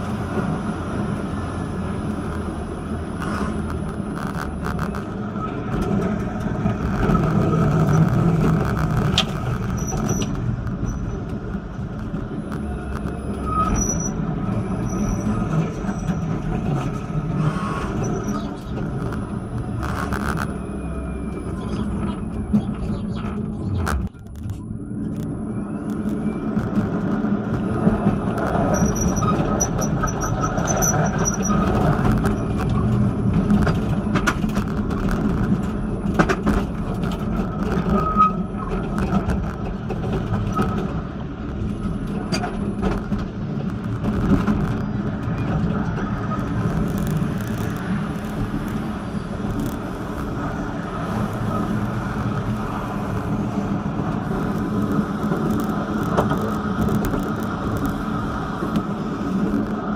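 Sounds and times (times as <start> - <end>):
tram wheels and motors rumbling: 0.0 - 59.9.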